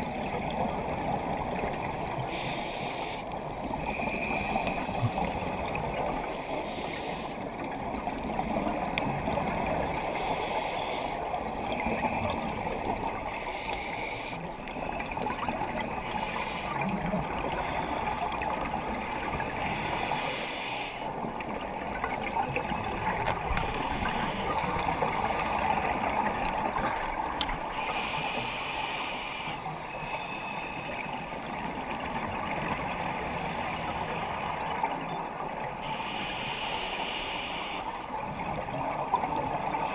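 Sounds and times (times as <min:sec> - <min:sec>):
underwater rushing hiss: 0:02.2 - 0:07.4, 0:10.0 - 0:14.5, 0:15.7 - 0:16.9, 0:19.2 - 0:21.1, 0:22.6 - 0:32.0, 0:35.8 - 0:38.0
regulator bubbles gurgling: 0:14.4 - 0:20.1, 0:21.1 - 0:28.0.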